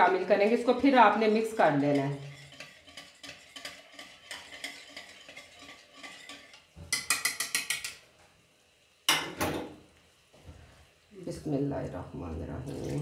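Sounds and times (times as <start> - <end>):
whisk ticking against plate: 1.8 - 8.0.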